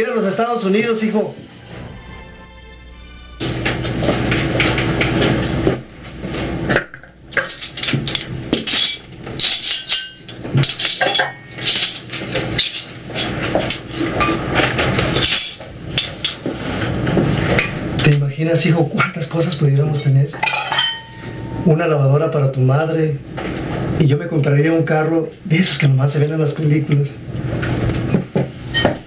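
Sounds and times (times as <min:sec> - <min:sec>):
cutlery clinking against dishes: 0:06.7 - 0:16.4, 0:20.0 - 0:21.6.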